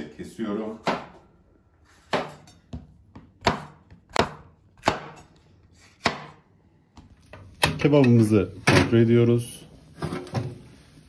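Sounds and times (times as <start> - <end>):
knife chopping on cutting board: 2.0 - 6.4.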